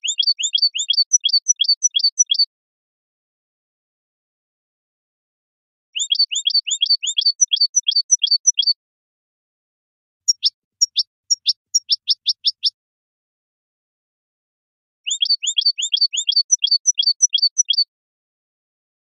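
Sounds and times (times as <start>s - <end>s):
goldfinch singing: 0.0s - 2.5s, 6.0s - 8.8s, 10.3s - 12.8s, 15.0s - 17.9s.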